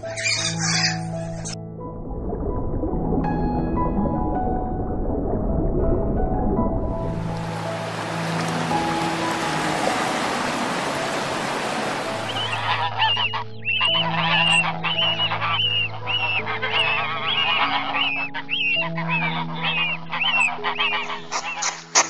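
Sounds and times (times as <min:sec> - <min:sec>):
geese calling: 0:00.0 - 0:01.6, 0:07.8 - 0:22.0
background music held notes: 0:00.0 - 0:22.0
ocean surf washing in: 0:06.9 - 0:12.6.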